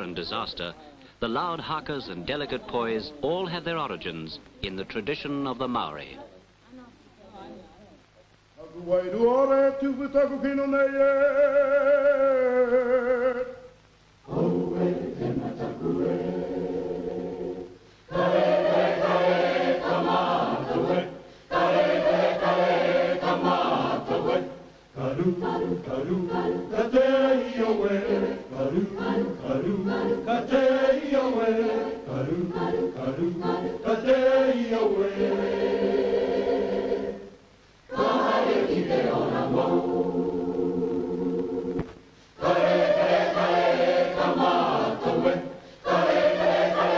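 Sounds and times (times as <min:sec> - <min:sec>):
choir singing in harmony: 0:14.2 - 0:46.9.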